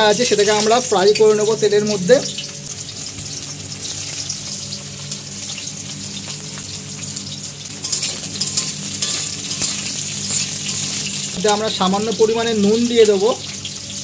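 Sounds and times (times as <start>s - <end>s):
vegetables sizzling in hot oil: 0.0s - 14.0s
spatula turning food: 5.0s - 12.9s.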